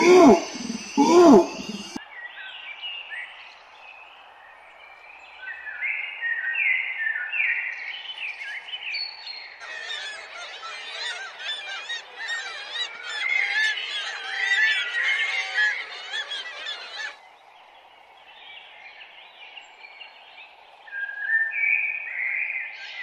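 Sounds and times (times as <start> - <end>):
birds calling: 0.0 - 2.0, 9.6 - 17.2
dense bird chorus: 0.0 - 4.1, 7.4 - 23.0.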